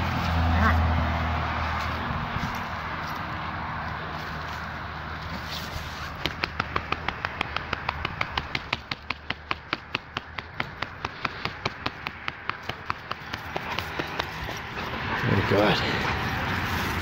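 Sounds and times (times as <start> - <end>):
rapid sharp clicking: 6.2 - 14.4.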